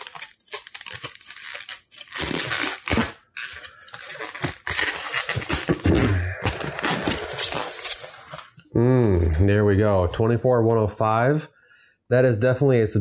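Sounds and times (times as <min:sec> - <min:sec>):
plastic wrapping crinkling: 0:00.0 - 0:08.6.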